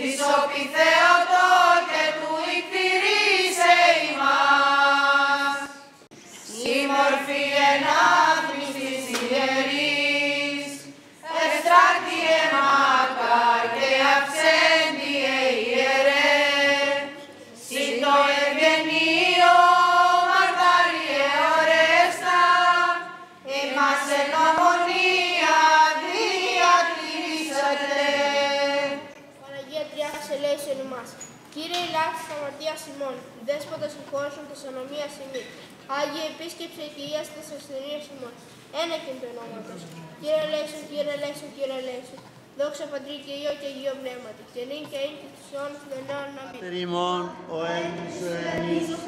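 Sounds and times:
voices chanting in unison: 0:06.5 - 0:29.2.

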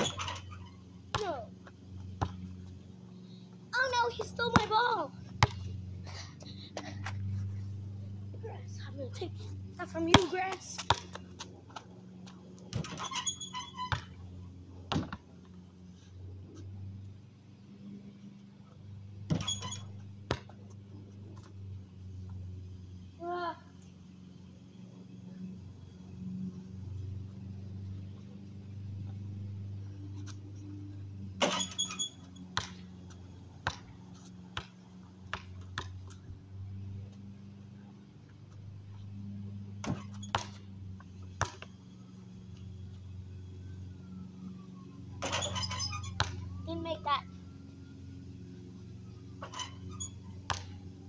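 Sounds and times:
basketball bouncing on asphalt: 0:00.0 - 0:05.9, 0:09.6 - 0:15.6, 0:18.9 - 0:22.6, 0:27.4 - 0:37.6, 0:38.3 - 0:43.2, 0:45.1 - 0:46.5, 0:49.4 - 0:51.0
steady low hum: 0:00.0 - 0:51.0
basketball thuds: 0:14.9 - 0:15.2.

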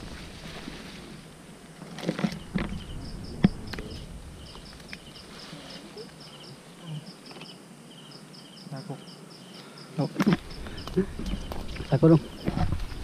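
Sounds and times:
night insects chirping: 0:00.0 - 0:13.0
knocks and scrapes on rock: 0:11.2 - 0:13.0.

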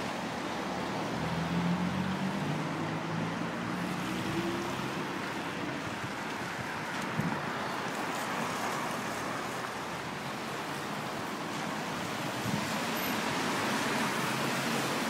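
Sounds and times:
car engines: 0:00.0 - 0:15.0
car tyres hissing on wet road: 0:07.9 - 0:15.0.

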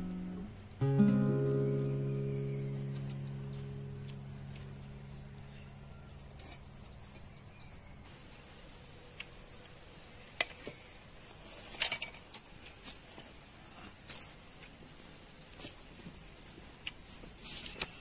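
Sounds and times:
faint outdoor ambience: 0:00.0 - 0:18.0
high chirps: 0:00.9 - 0:04.7.

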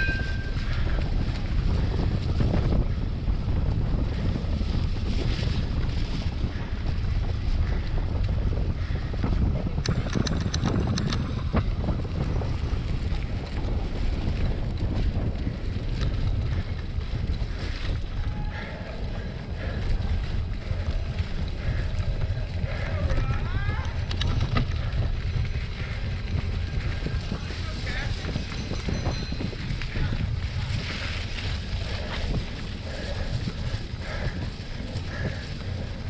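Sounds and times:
wind rumbling on microphone: 0:00.0 - 0:36.0
bike rattling clicks: 0:04.2 - 0:36.0.

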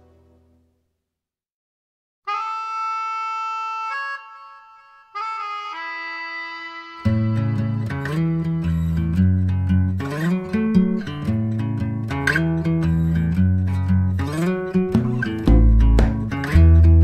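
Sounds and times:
reed instrument melody: 0:02.3 - 0:08.8, 0:14.7 - 0:17.0
background music: 0:14.3 - 0:17.0.

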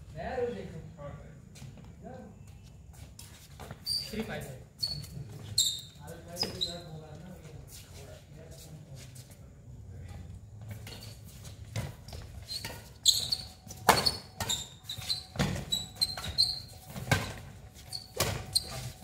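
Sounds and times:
shoe squeaks: 0:02.4 - 0:07.0, 0:10.6 - 0:19.0.

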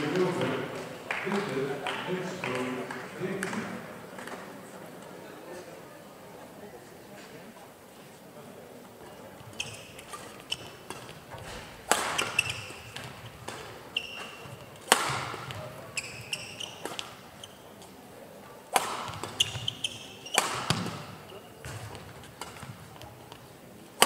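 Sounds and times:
shoes squeaking on court floor: 0:09.0 - 0:18.1, 0:18.8 - 0:23.6
rackets hitting shuttlecock: 0:09.4 - 0:17.2, 0:18.7 - 0:23.4.

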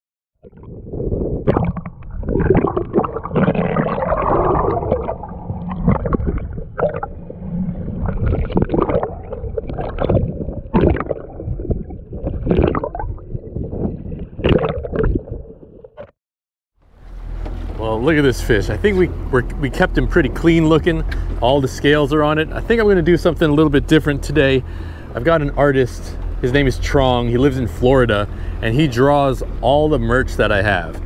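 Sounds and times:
seawater sloshing and splashing: 0:00.5 - 0:15.6.

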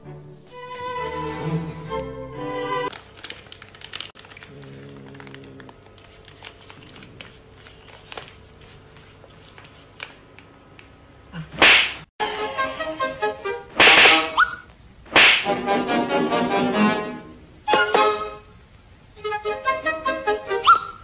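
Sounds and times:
plastic bag crinkling: 0:02.9 - 0:08.6.

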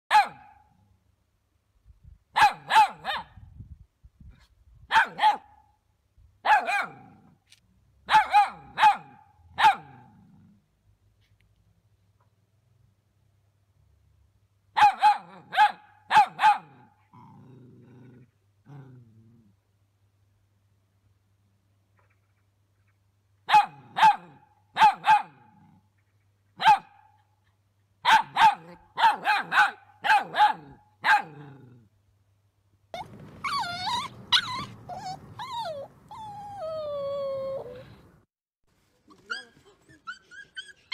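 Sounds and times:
dog barking: 0:00.1 - 0:00.7, 0:02.4 - 0:03.4, 0:04.9 - 0:05.6, 0:06.4 - 0:07.2, 0:08.1 - 0:10.1, 0:14.8 - 0:16.9, 0:23.5 - 0:25.6, 0:26.6 - 0:27.2, 0:28.0 - 0:31.4.

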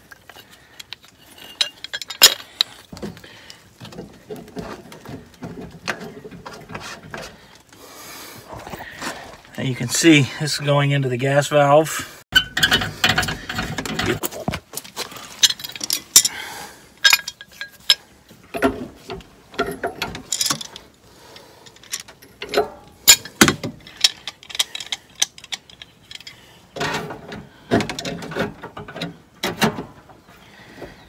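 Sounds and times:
wrench clicking and scraping on metal: 0:19.6 - 0:27.0.

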